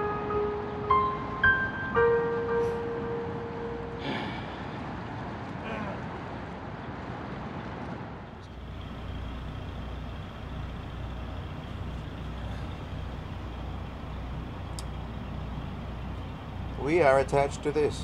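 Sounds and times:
low mechanical drone: 8.4s - 18.0s.

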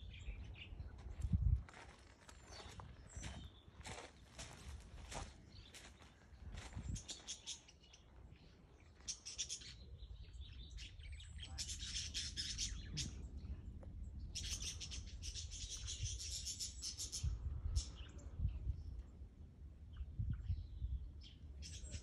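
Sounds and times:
budgerigars chattering: 10.8s - 13.2s.

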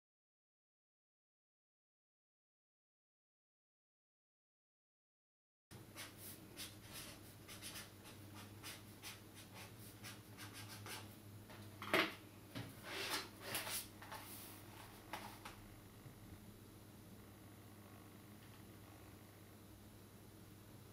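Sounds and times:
writing on paper: 6.0s - 11.1s
faint low hum: 13.6s - 20.9s.

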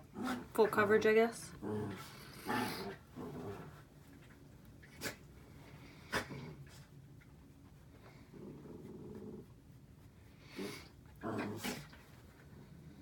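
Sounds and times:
dogs playing: 0.0s - 13.0s.

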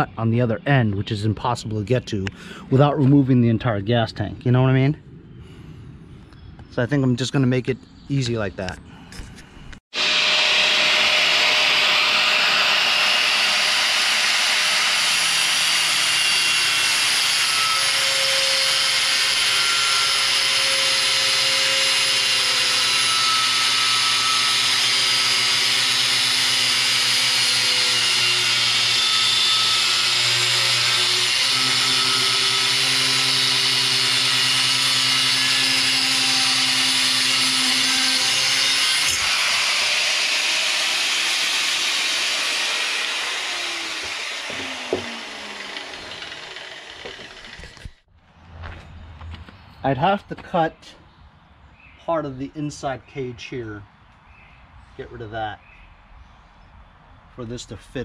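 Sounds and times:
angle grinder cutting metal: 9.9s - 48.1s.

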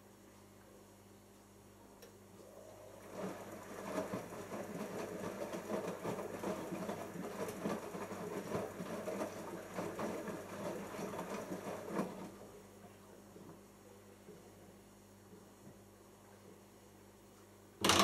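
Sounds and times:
washing machine laundry sloshing: 2.6s - 13.6s.

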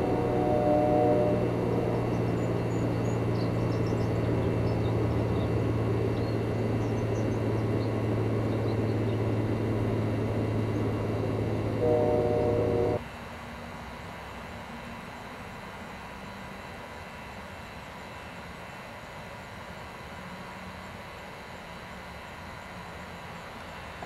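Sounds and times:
chord of steady tones: 0.0s - 13.0s
low mechanical rumble: 0.0s - 13.0s
constant hum: 0.0s - 24.0s.

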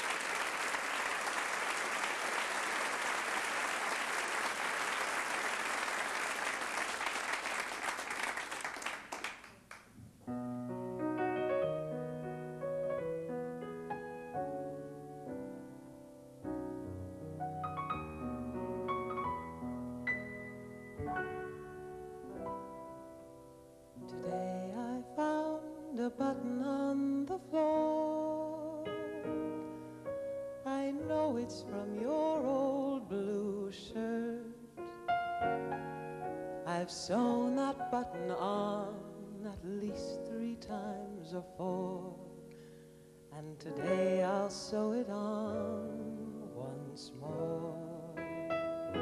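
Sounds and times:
solo piano: 10.1s - 49.0s.

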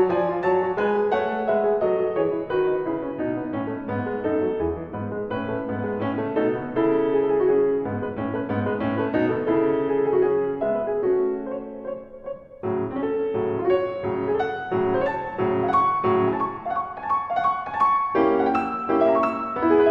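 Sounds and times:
piano music: 0.0s - 19.9s.

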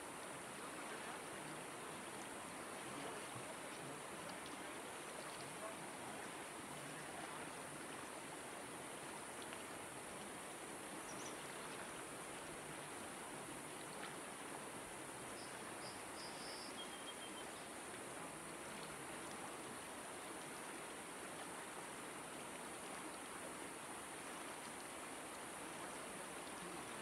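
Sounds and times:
river flowing over stones: 0.0s - 27.0s
faint high chirps: 15.4s - 17.6s.

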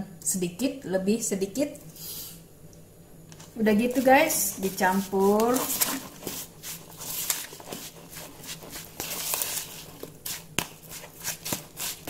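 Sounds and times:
metal spoon stirring in a bowl: 3.9s - 12.0s.

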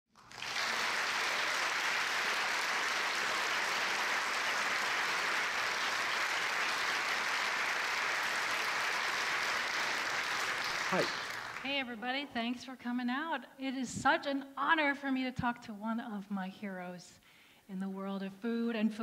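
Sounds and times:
audience applauding: 0.1s - 11.7s.

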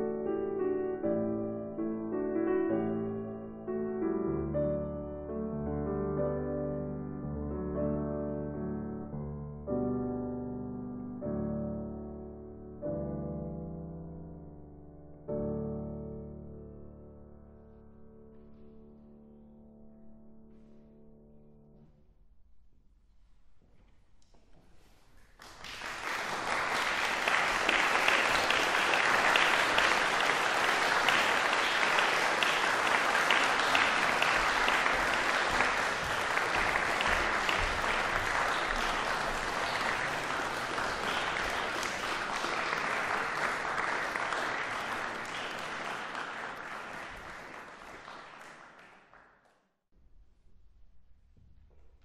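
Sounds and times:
piano music: 0.0s - 21.8s, 26.2s - 48.1s
audience applauding: 25.2s - 49.4s.

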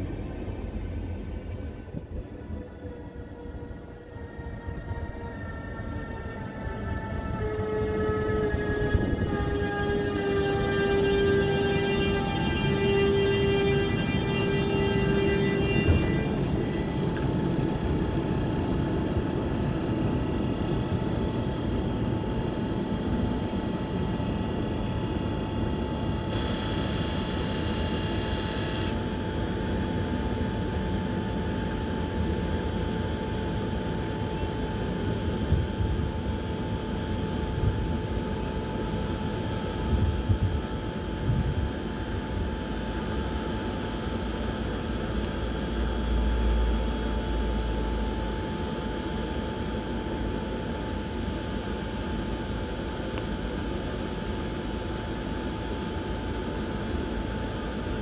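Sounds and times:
high electronic whine: 0.0s - 58.0s
locomotive cooling blowers rushing: 6.4s - 31.3s.

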